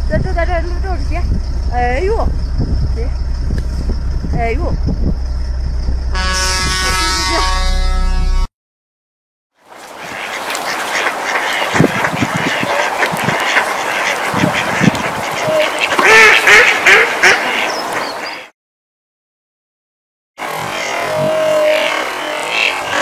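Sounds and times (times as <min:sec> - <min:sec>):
ducks quacking: 0:09.8 - 0:18.5, 0:20.4 - 0:23.0.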